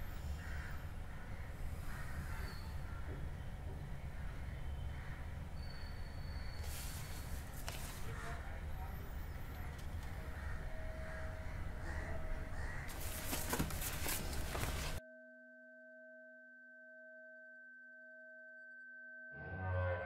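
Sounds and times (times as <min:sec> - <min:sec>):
rustles and clicks: 0:12.9 - 0:15.0.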